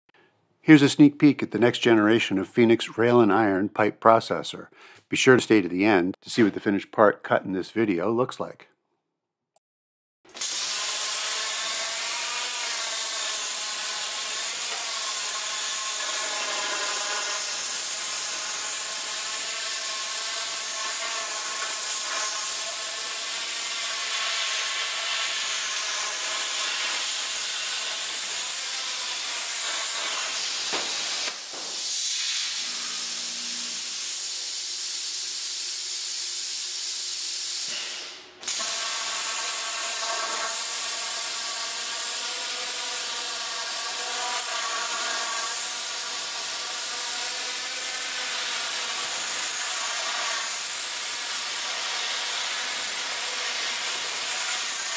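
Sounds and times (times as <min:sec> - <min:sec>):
plasma torch hissing: 0:10.3 - 0:42.3, 0:44.6 - 0:54.9.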